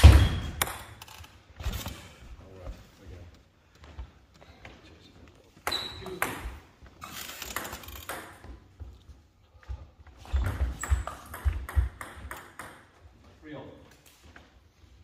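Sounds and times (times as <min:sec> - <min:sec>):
table tennis ball clicking: 0:07.4 - 0:08.4.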